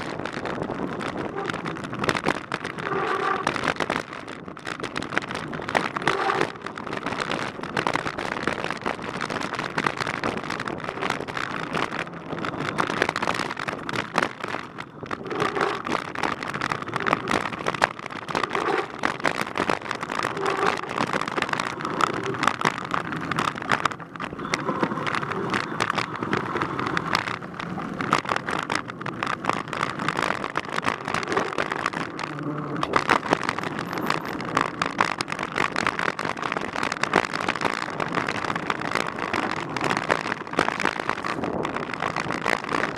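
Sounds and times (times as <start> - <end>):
bike rattling over bumps: 0.0 - 42.9
bike tyres on dirt and gravel: 0.0 - 42.9.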